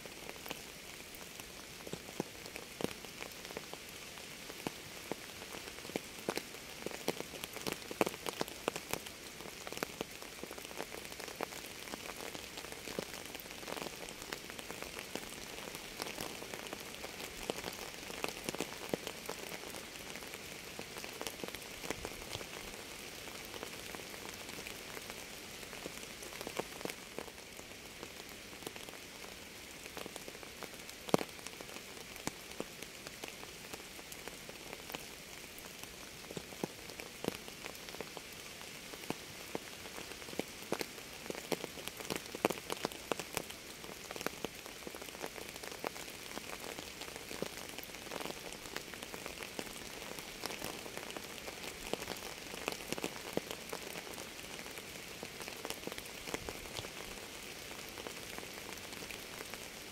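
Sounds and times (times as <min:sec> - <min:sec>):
steady rain hiss: 0:00.0 - 0:59.9.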